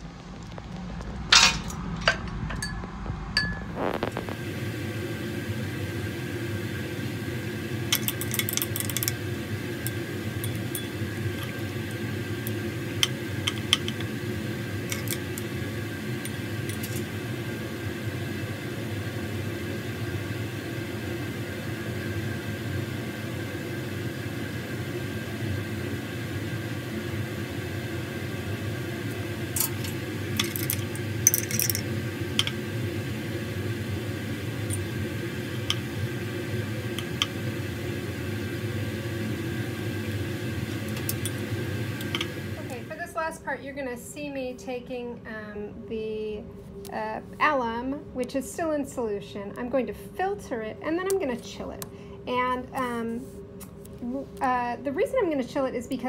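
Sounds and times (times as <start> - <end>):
ventilation fan hum: 0.0 - 56.0
glass rod clinking on beaker: 3.4 - 3.7, 30.4 - 32.5.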